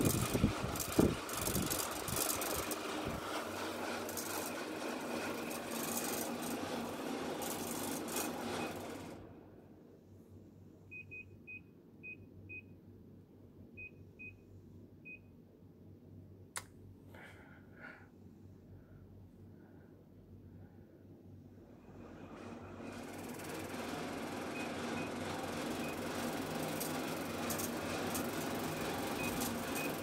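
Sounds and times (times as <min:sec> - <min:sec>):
air conditioner blowing air: 0:00.0 - 0:30.0
sharp click: 0:16.5 - 0:16.8.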